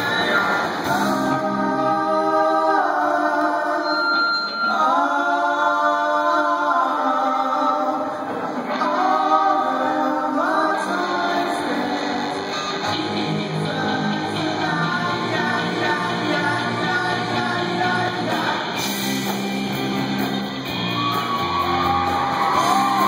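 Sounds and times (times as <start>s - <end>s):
live rock band: 0.0s - 2.6s, 8.4s - 23.0s
men singing: 0.0s - 19.0s.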